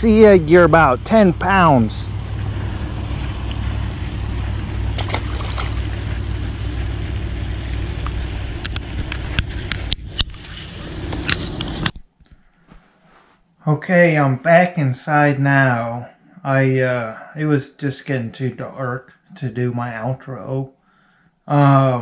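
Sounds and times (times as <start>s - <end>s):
low rumble: 0.0s - 11.9s
outdoor hiss: 0.0s - 11.9s.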